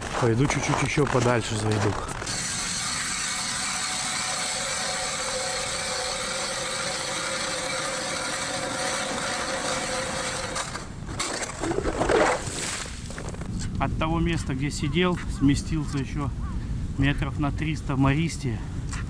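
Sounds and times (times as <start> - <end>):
motor running steadily: 2.2 - 10.8
rustle: 10.5 - 19.0.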